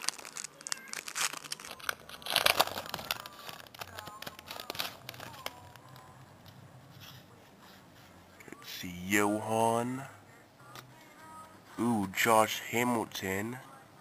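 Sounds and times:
foil wrappers crinkling: 0.0 - 6.1.

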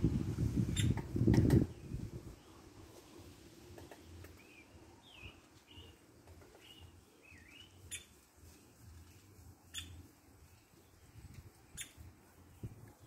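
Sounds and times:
woodpecker chirps: 0.7 - 1.6, 3.8 - 8.2, 9.7 - 10.0, 11.7 - 12.1.

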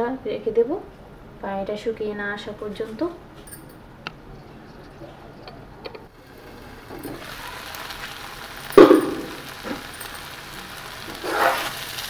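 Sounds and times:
filling sizzling in a frying pan: 6.1 - 12.0.

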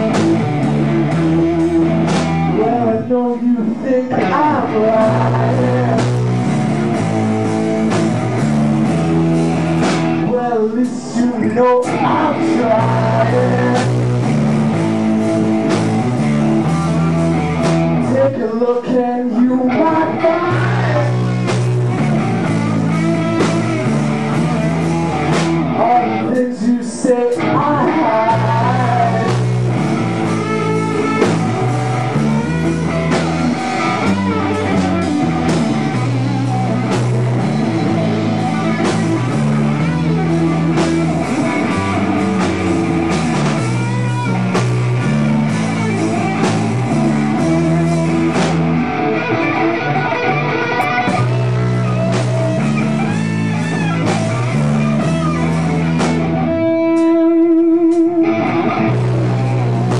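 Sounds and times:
drum kit: 0.0 - 59.9
electric guitars playing riff: 0.0 - 59.9.

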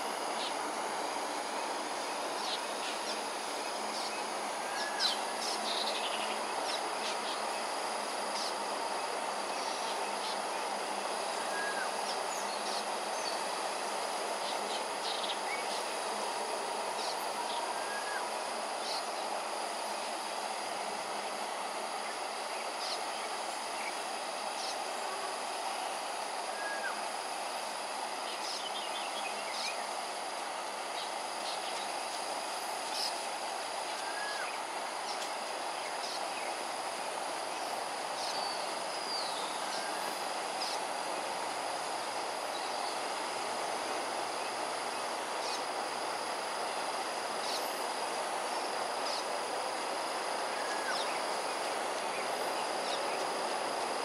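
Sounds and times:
high insect drone: 0.0 - 54.0.

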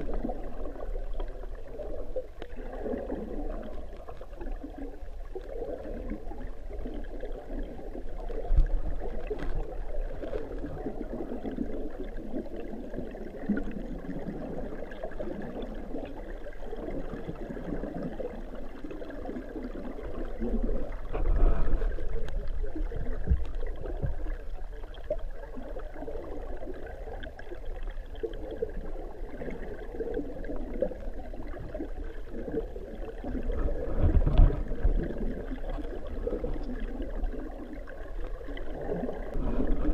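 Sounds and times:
underwater rush of flowing water: 0.0 - 39.9
low underwater thumps: 21.0 - 24.5, 33.4 - 36.8.

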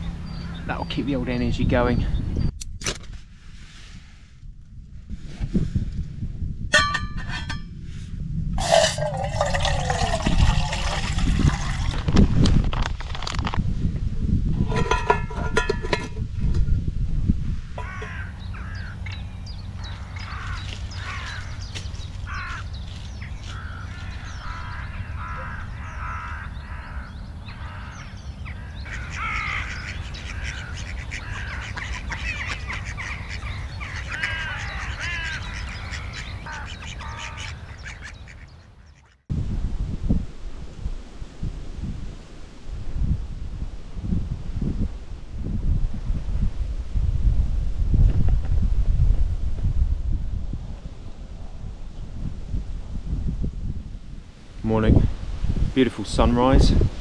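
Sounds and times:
metallic clatter of cook pot: 6.7 - 7.7, 14.6 - 16.6
flock of birds calling: 17.8 - 39.2.

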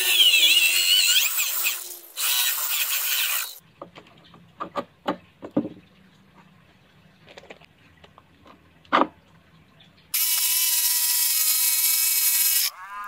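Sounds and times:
electric drill boring into wood: 0.0 - 3.6, 10.2 - 12.7.

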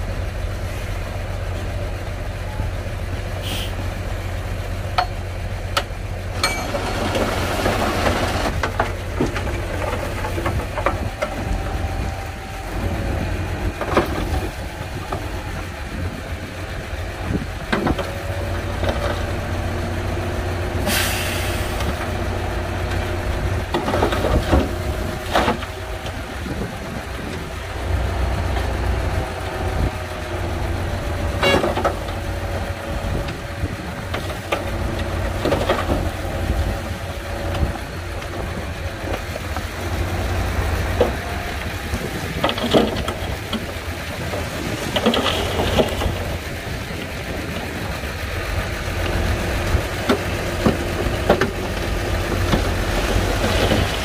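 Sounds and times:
heavy machinery diesel engine: 0.0 - 54.0
short hiss: 3.4 - 3.8.

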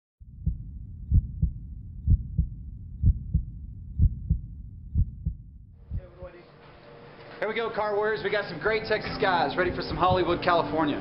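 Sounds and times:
heartbeat thumps: 0.2 - 6.3, 9.6 - 10.6
low rumble: 0.2 - 6.3.

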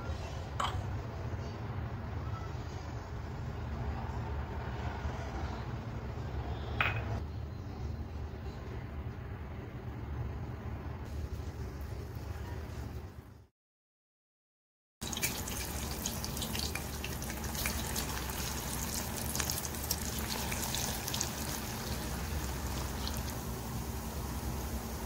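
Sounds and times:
meat deep-frying in hot oil: 15.0 - 25.0.

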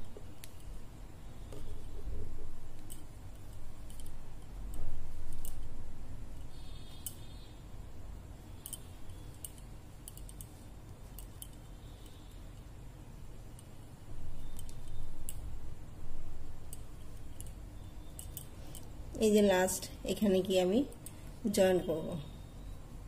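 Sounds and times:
crochet hook clicking in yarn: 1.5 - 5.8, 8.6 - 12.7, 14.4 - 15.6.

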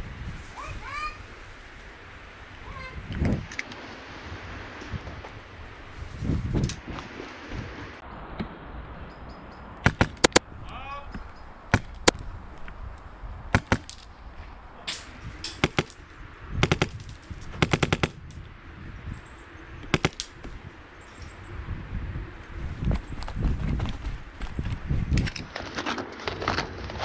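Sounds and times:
airsoft rifles firing: 14.9 - 16.0, 16.6 - 18.2, 19.9 - 20.4.

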